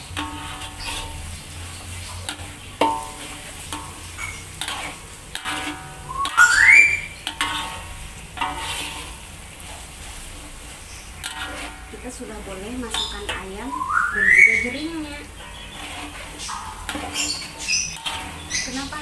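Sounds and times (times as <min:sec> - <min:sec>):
metal spatula scraping wok: 0:00.0 - 0:19.0
paste sizzling in oil: 0:00.0 - 0:19.0
rising squeal: 0:05.9 - 0:07.2.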